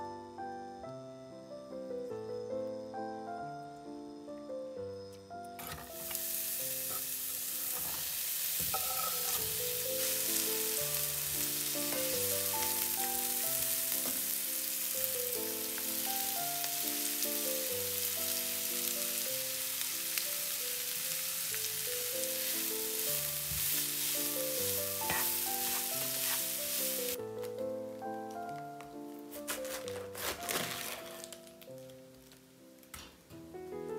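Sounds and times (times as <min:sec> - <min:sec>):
soft background music: 0:00.0 - 0:33.9
vegetables sizzling in a pan: 0:05.6 - 0:27.2
spatula stirring in a pan: 0:06.9 - 0:13.1, 0:22.3 - 0:27.2.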